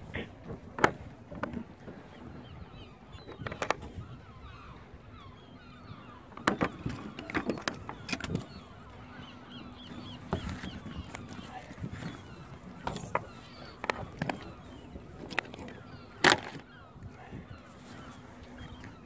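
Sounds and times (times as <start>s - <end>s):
knocks and clicks on boat deck: 0.0s - 2.3s, 3.1s - 4.2s, 6.3s - 9.1s, 9.9s - 16.8s
faint birds chirping: 0.0s - 19.0s.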